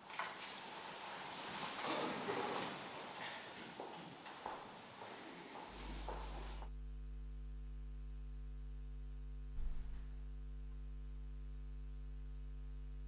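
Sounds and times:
electrical mains hum: 0.0s - 13.0s
footsteps on hard floor: 2.6s - 6.7s, 9.6s - 10.1s
low thump: 9.5s - 10.2s.

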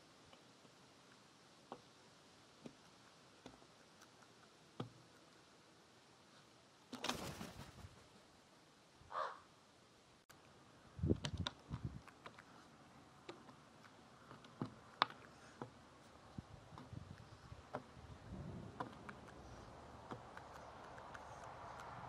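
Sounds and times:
beak pecking on wood: 18.8s - 22.0s.

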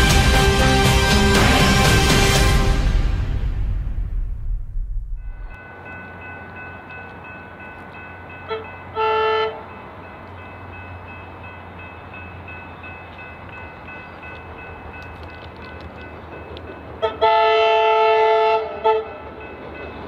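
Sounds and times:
level-crossing bells ringing: 5.2s - 15.2s
train horn: 8.5s - 9.7s, 17.0s - 19.3s.

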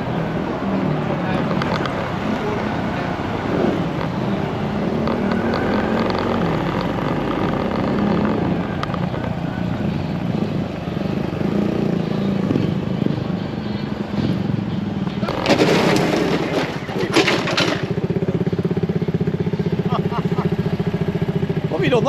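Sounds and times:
motorcycle engine running: 17.2s - 22.0s.

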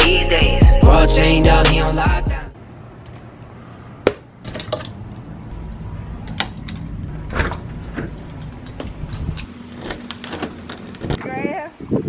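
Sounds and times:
door opening: 5.6s - 11.2s
car keys jangling: 8.5s - 11.2s.

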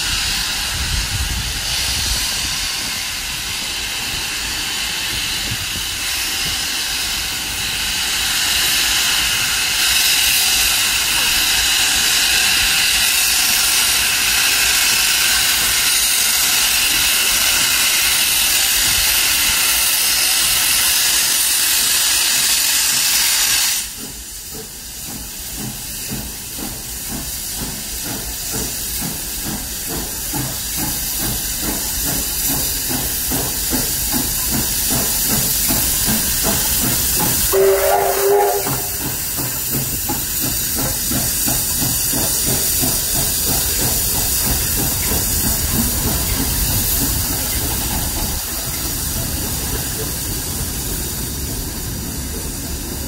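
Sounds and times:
loud hiss of steam: 0.0s - 53.0s
steam locomotive exhaust chuffs: 0.0s - 53.0s
locomotive whistle blast: 37.5s - 39.2s.

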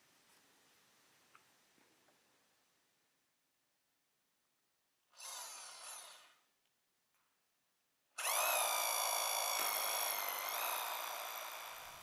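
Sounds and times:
hammer drill with motor whine: 5.1s - 6.5s, 8.2s - 12.0s.

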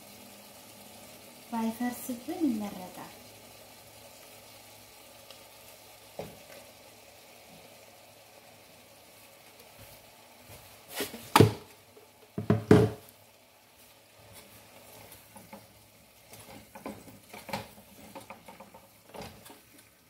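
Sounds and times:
loud knocks: 12.4s - 13.0s
spatula scraping a frying pan: 14.2s - 20.0s.

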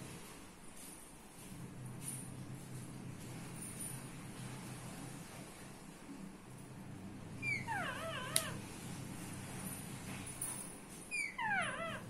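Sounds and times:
parakeet calls: 7.4s - 8.6s, 11.1s - 12.0s.

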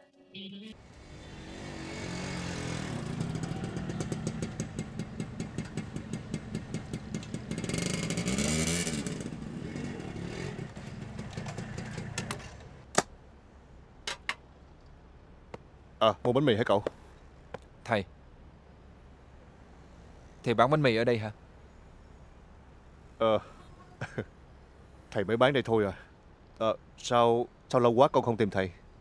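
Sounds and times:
small motorbike engine running: 1.0s - 12.5s.

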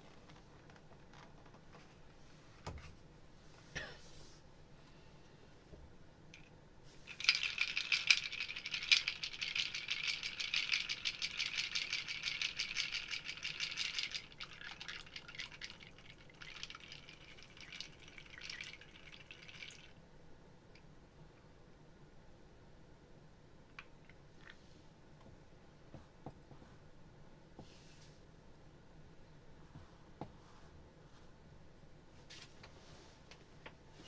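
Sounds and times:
ice cubes clinking in glass: 7.0s - 15.6s.

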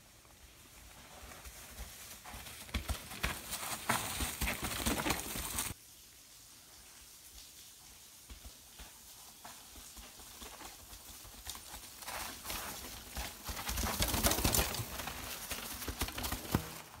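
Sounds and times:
bikes rattling over rocks: 2.3s - 5.7s, 10.7s - 17.0s
bike knocking on rocky trail: 8.4s - 17.0s.

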